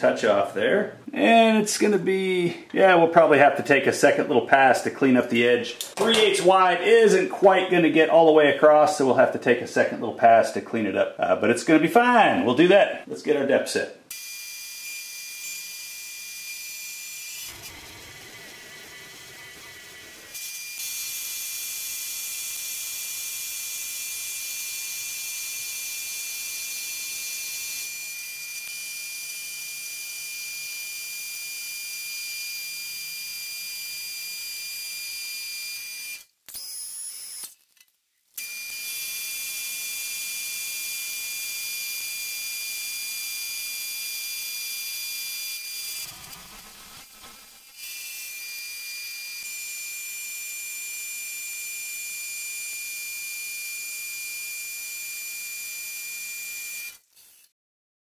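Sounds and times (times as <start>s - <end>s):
milling machine spindle whine: 17.2s - 20.6s.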